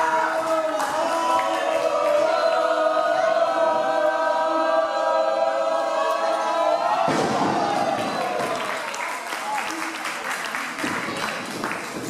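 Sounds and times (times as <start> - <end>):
crowd chanting: 0.0 - 9.0.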